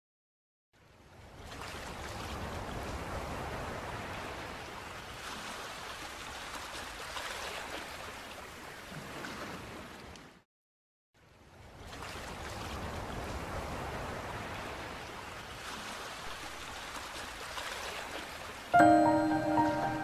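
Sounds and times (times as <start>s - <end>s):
ocean waves washing: 18.8s - 20.0s.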